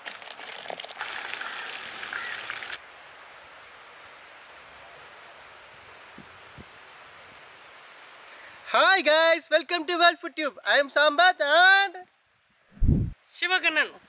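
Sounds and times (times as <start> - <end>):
beer pouring into steel basin: 0.0 - 1.8
faint steady hiss: 1.0 - 14.0.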